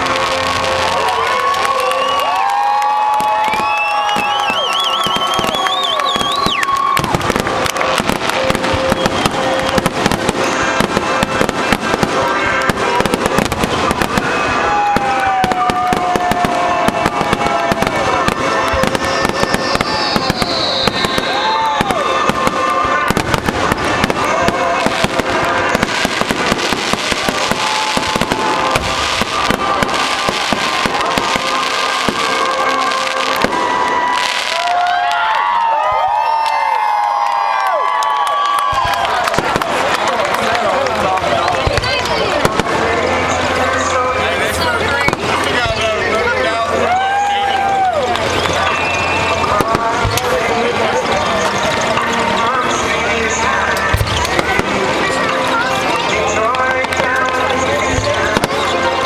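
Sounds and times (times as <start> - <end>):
whistling firework shells: 3.4 - 34.3, 48.1 - 50.4.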